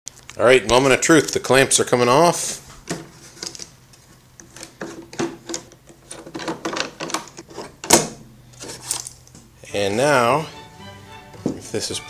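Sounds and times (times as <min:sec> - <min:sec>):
metal clamps clicking and knocking: 0:04.5 - 0:08.2.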